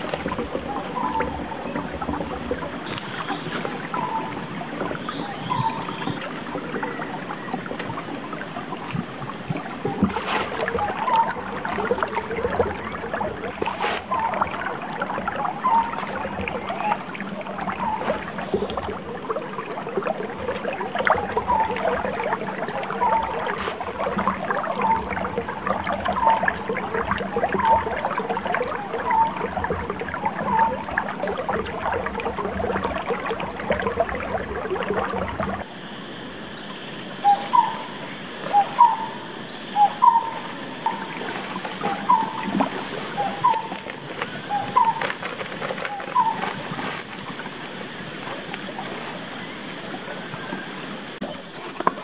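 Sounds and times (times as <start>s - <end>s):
stream running: 0.0s - 52.0s
high-pitched insect drone: 35.6s - 52.0s.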